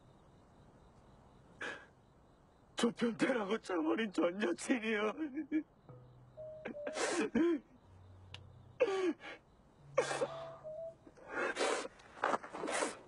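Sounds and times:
man sobbing: 6.6 - 7.7.

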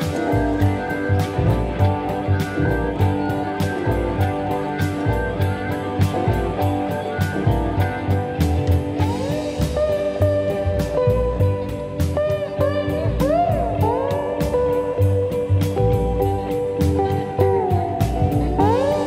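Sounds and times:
guitar with bent notes: 0.0 - 19.0
steady drum beat: 0.0 - 19.0.

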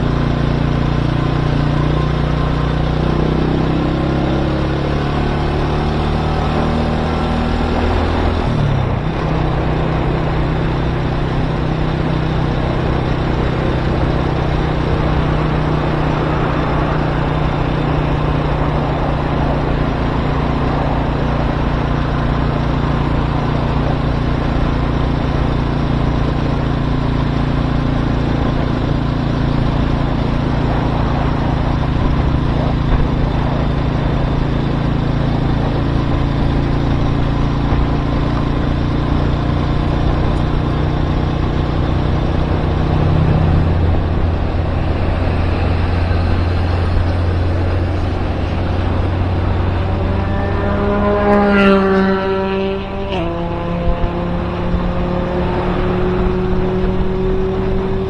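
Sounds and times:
motorcycle engine running: 0.0 - 58.0
wind noise: 3.1 - 58.0.

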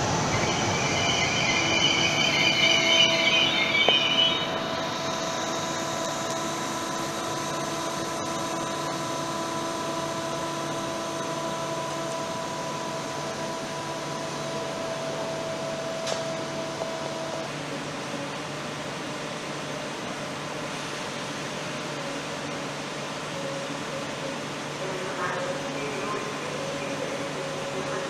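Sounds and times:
electric train whirring hum: 0.0 - 28.0.

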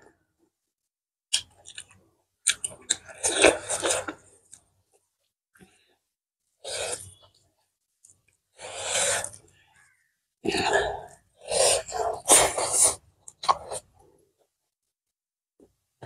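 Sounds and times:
person eating by hand: 1.3 - 4.7.

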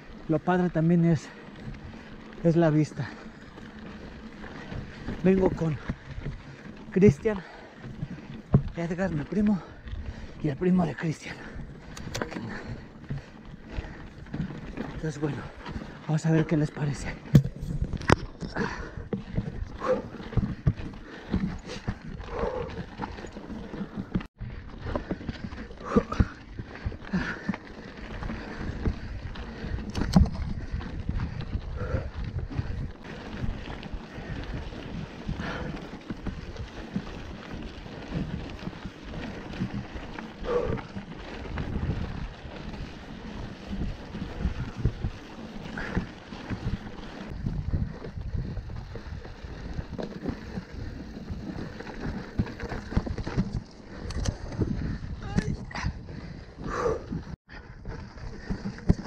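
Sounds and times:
bike knocking and rattling on rocks: 0.0 - 59.0
rumble of tyres on dirt: 0.0 - 59.0
wind noise on microphone: 17.0 - 23.4, 24.4 - 59.0.

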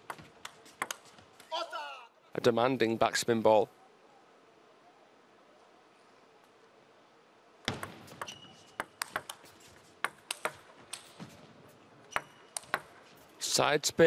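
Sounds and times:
table tennis ball clicks: 0.1 - 1.0, 7.7 - 11.2, 12.0 - 13.0.

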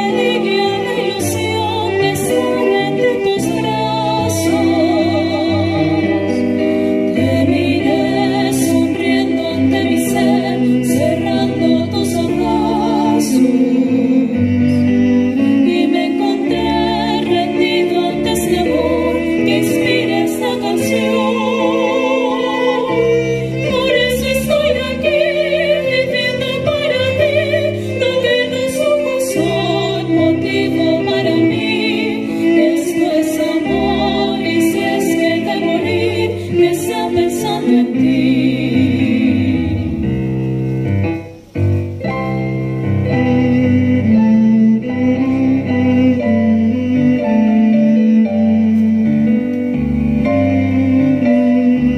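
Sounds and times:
women singing: 0.0 - 40.1
piano: 0.0 - 51.9
violin: 0.0 - 51.9.

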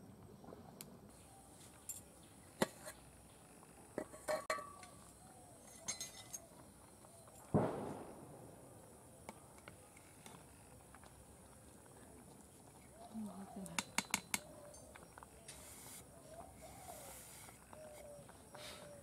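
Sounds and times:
ladle knocking metal pot: 4.0 - 4.9
metal lid clinking: 4.0 - 5.0, 5.7 - 6.5.

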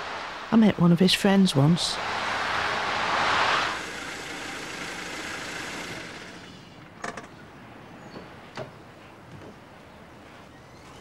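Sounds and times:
car driving past: 1.8 - 6.5.

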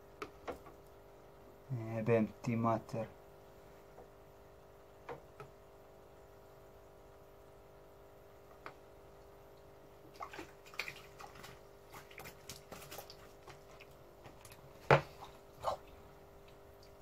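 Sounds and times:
steady hum: 0.0 - 17.0
fish net splashing water: 10.0 - 15.4.

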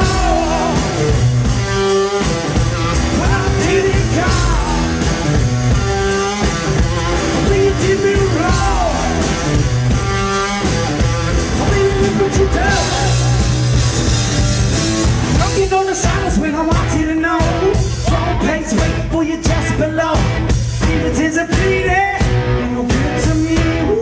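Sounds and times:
electric guitar riff: 0.0 - 16.9
drums: 0.0 - 24.0.

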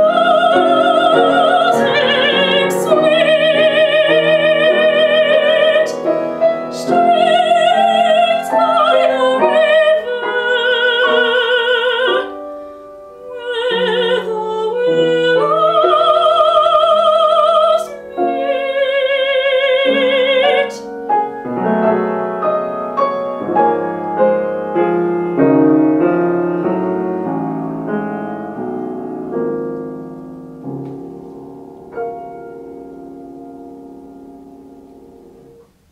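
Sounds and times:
woman singing classically: 0.0 - 12.4, 13.2 - 21.0
piano playing: 0.0 - 35.9.

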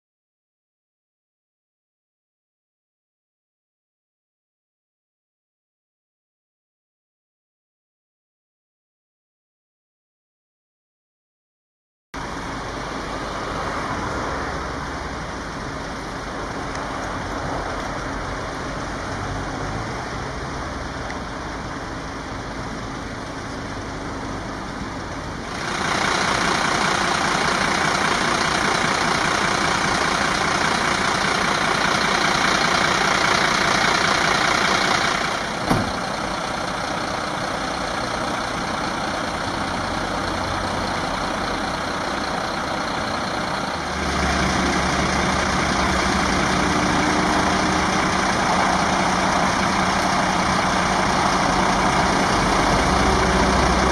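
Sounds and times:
engine running steadily: 12.2 - 53.9
sharp knock: 35.6 - 36.0.

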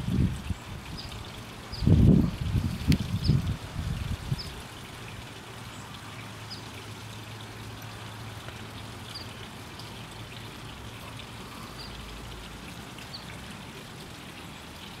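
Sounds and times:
fountain trickling: 0.0 - 15.0.

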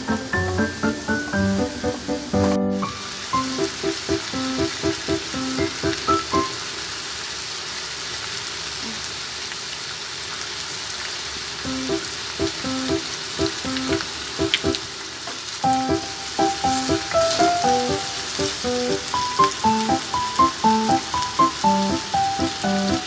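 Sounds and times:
light plucked melody: 0.0 - 6.6, 11.7 - 14.8, 15.6 - 23.0
chicken sizzling in hot oil: 0.0 - 23.0.

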